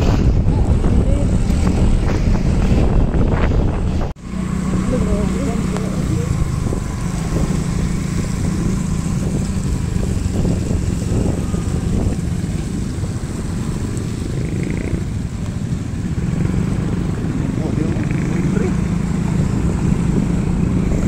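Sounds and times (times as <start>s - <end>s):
low engine hum: 0.0s - 21.0s
scooters passing on a wet road: 4.2s - 21.0s.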